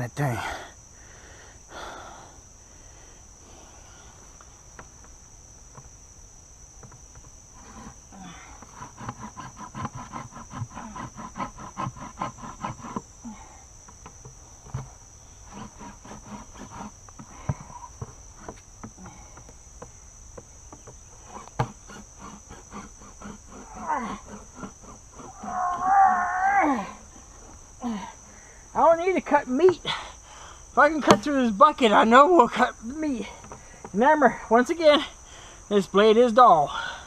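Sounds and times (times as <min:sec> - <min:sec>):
knife sawing through plastic: 0:07.6 - 0:08.0, 0:08.6 - 0:13.0, 0:14.7 - 0:17.0, 0:21.2 - 0:25.5
loud wavering squeal: 0:25.2 - 0:27.0.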